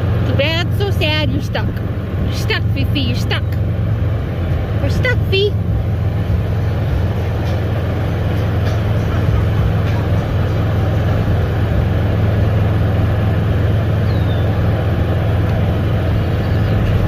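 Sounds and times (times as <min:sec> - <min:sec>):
golf cart humming: 0:00.0 - 0:17.0.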